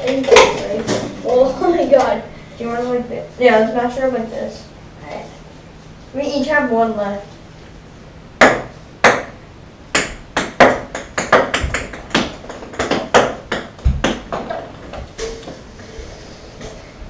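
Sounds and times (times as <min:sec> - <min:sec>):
ping-pong ball bouncing: 0:08.4 - 0:15.5.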